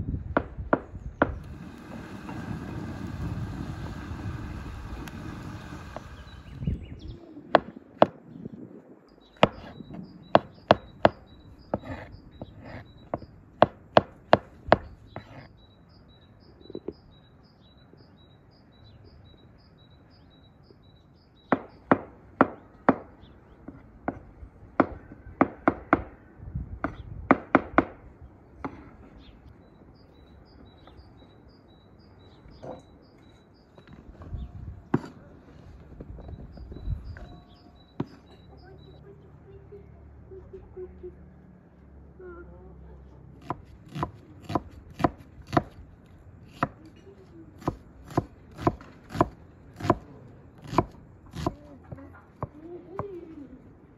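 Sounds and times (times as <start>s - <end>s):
wood fire crackling: 1.4s - 6.6s
knife chopping on wooden board: 43.4s - 45.8s, 47.6s - 50.0s, 50.6s - 51.6s.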